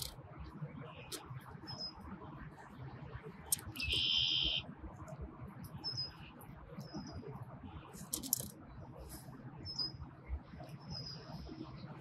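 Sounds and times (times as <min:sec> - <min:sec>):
quick clicks: 0:03.5 - 0:03.9
small birds chirping: 0:03.5 - 0:04.6.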